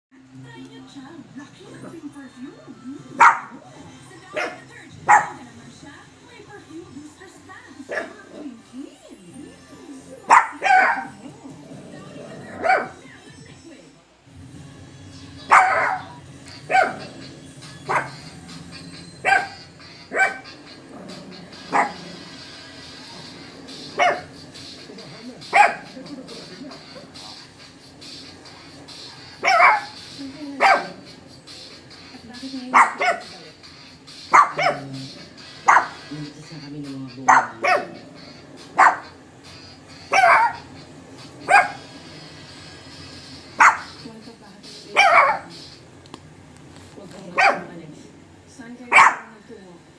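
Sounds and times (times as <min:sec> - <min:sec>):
small dog barking: 0:03.2 - 0:03.6, 0:04.3 - 0:05.5, 0:07.9 - 0:08.4, 0:10.3 - 0:11.2, 0:12.6 - 0:13.0, 0:15.5 - 0:17.1, 0:17.8 - 0:18.2, 0:19.2 - 0:20.6, 0:21.7 - 0:22.0, 0:24.0 - 0:24.3, 0:25.5 - 0:26.0, 0:29.4 - 0:30.0, 0:30.6 - 0:31.0, 0:32.7 - 0:33.3, 0:34.3 - 0:34.9, 0:35.6 - 0:36.0, 0:37.3 - 0:38.0, 0:38.8 - 0:39.2, 0:40.1 - 0:40.7, 0:41.5 - 0:41.9, 0:43.6 - 0:44.0, 0:44.9 - 0:45.5, 0:47.3 - 0:47.7, 0:48.9 - 0:49.3.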